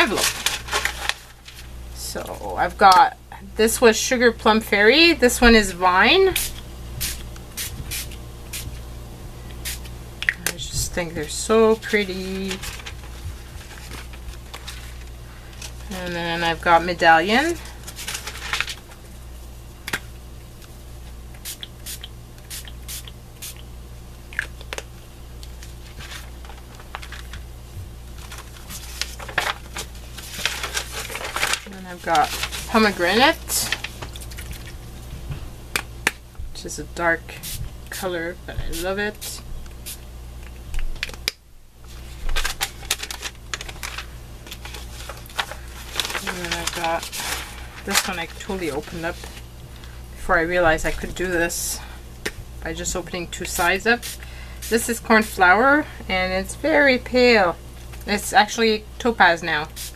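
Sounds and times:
paper handling: 0:00.0 - 0:01.8, 0:11.2 - 0:16.2, 0:17.4 - 0:19.0, 0:25.5 - 0:27.4, 0:28.1 - 0:34.8, 0:41.8 - 0:50.0
low steady hum: 0:00.0 - 0:59.9.

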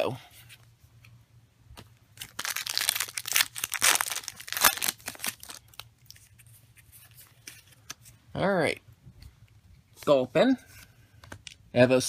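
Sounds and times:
foil wrapper crinkling: 0:02.2 - 0:06.3.

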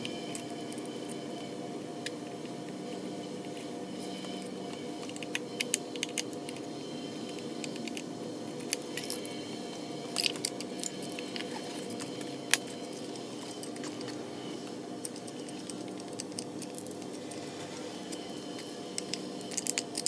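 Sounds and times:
steady low hum: 0:00.0 - 0:20.0
screwdriver and screws clinking on metal: 0:05.0 - 0:09.4, 0:10.1 - 0:14.2, 0:15.0 - 0:20.0.

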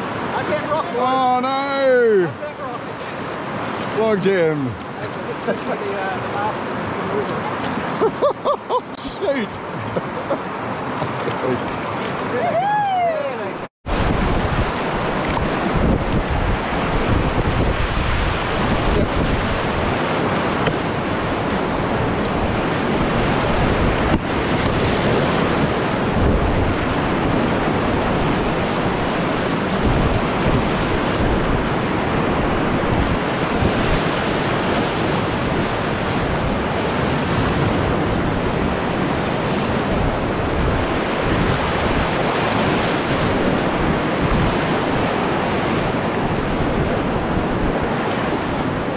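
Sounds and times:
rushing rapids: 0:00.0 - 0:48.9
wind on microphone: 0:10.8 - 0:48.9.

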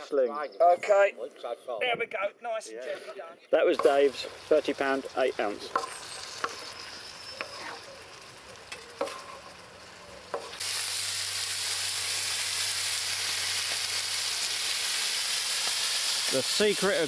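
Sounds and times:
food sizzling in pan: 0:03.6 - 0:17.0
spatula tapping pan: 0:03.8 - 0:04.2, 0:05.6 - 0:06.7, 0:10.3 - 0:10.6
loud hiss of liquid in hot pan: 0:10.5 - 0:17.0.

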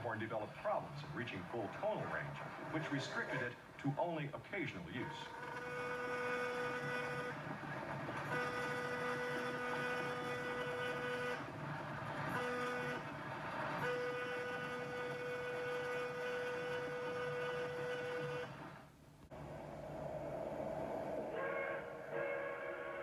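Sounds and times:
rumble of moving train: 0:05.0 - 0:18.5
train air horn blasts: 0:05.0 - 0:18.6, 0:21.3 - 0:23.0.

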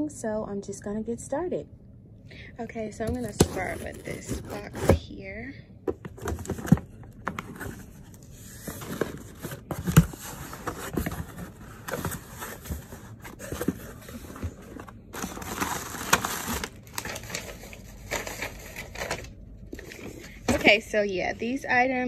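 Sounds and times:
cardboard box handled: 0:05.9 - 0:17.4
packing tape tearing: 0:15.2 - 0:19.3.

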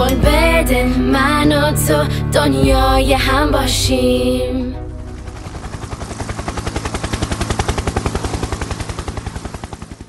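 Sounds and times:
helicopter rotor chopping: 0:04.9 - 0:10.0.

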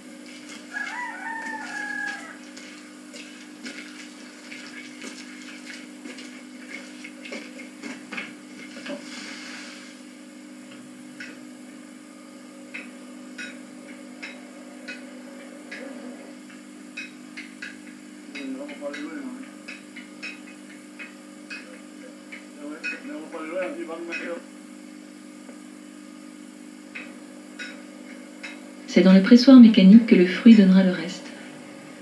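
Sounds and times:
low hum: 0:10.6 - 0:18.3, 0:24.5 - 0:32.0.

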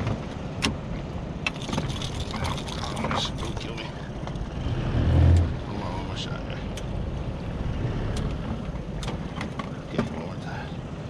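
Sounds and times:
wind rumbling on microphone: 0:00.0 - 0:05.8
knocks and clicks of gear handling: 0:01.4 - 0:04.5, 0:08.2 - 0:10.2.

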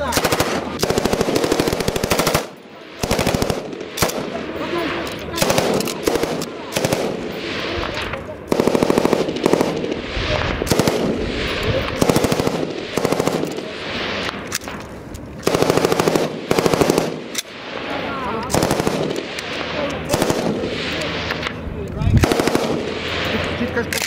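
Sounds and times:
machine gun automatic bursts: 0:00.0 - 0:07.4, 0:08.5 - 0:10.0, 0:10.7 - 0:13.7, 0:15.4 - 0:17.4, 0:18.5 - 0:19.4, 0:20.0 - 0:21.0, 0:22.2 - 0:24.0.

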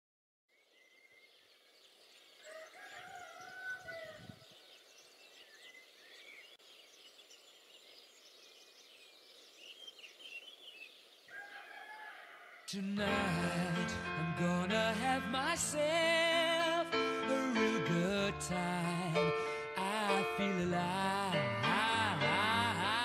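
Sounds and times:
songbirds chirping: 0:00.5 - 0:23.0
rooster crowing: 0:02.4 - 0:04.4, 0:11.3 - 0:12.8.

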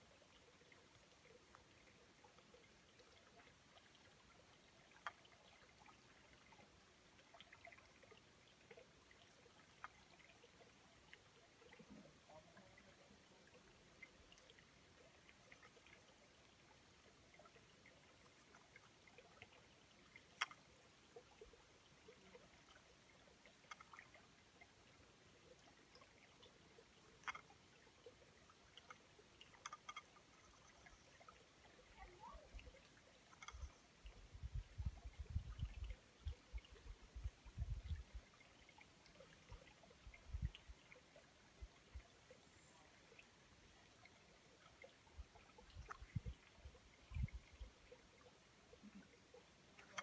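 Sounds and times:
faint trickle of water: 0:00.0 - 0:50.0
small scattered ticks: 0:00.2 - 0:24.7, 0:25.4 - 0:31.9, 0:32.6 - 0:34.1, 0:48.2 - 0:50.0.

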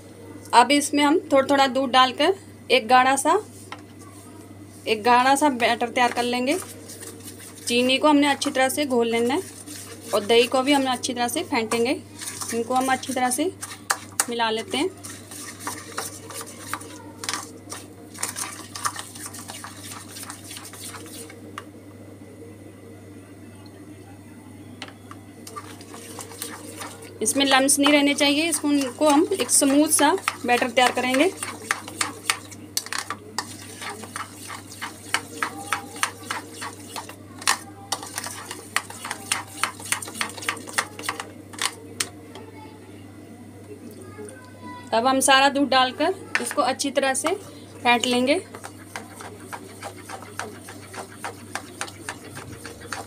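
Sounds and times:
metal spoon stirring in metal bowl: 0:05.2 - 0:21.4, 0:25.4 - 0:42.1, 0:46.4 - 0:53.0.

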